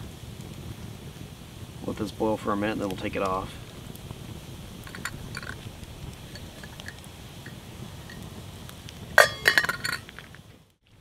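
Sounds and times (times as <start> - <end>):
campfire crackles: 0.0 - 11.0
coffee pot boiling: 0.0 - 11.0
metallic clinks of pot lid: 9.2 - 10.1.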